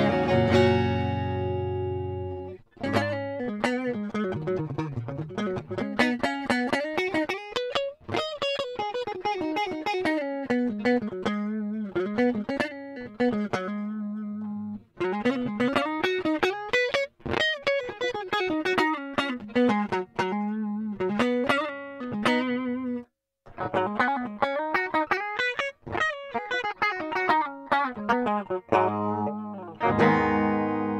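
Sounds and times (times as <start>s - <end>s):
clean electric guitar lead: 0.0s - 16.6s, 23.6s - 30.9s.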